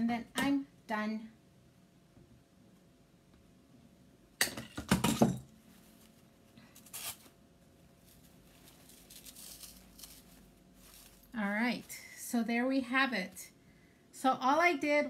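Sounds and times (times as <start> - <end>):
craft flower rustling and crinkling: 5.6 - 13.6.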